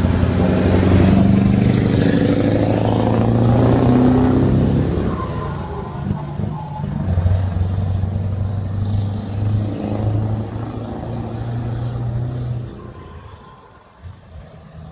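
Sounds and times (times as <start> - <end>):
truck engine running: 0.0 - 13.0.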